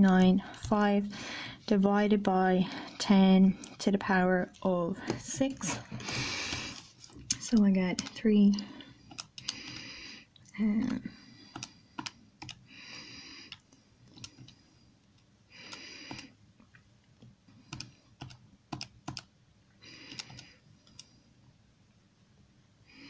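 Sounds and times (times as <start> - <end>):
calculator keys clicking: 11.5 - 12.6, 17.7 - 19.3, 20.1 - 21.0.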